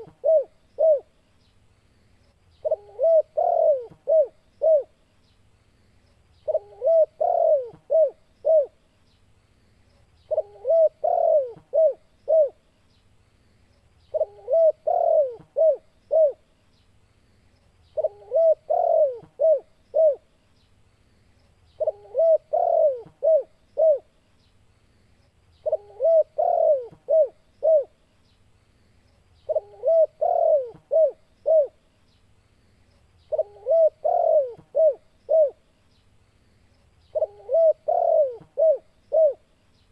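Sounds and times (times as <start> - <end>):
dove cooing: 0.0 - 1.2, 2.6 - 5.0, 6.4 - 8.8, 10.3 - 12.6, 14.1 - 16.4, 18.0 - 20.3, 21.8 - 24.1, 25.6 - 28.0, 29.4 - 31.8, 33.3 - 35.6, 37.1 - 39.5.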